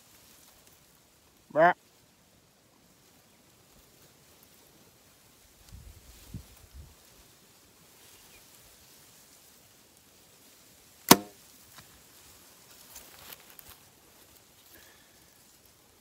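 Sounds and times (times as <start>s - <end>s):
bow string crack and thrum: 11.1s - 11.4s.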